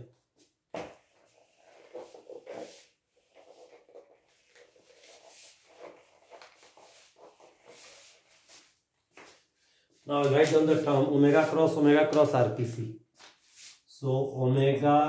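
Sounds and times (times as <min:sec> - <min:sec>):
eraser rubbing on whiteboard: 0:01.2 - 0:08.8, 0:10.6 - 0:11.8.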